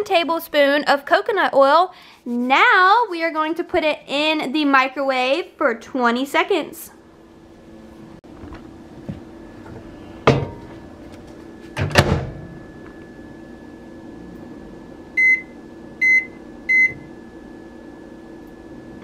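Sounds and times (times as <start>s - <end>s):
microwave door clunking shut: 10.3s - 10.7s, 11.8s - 12.6s.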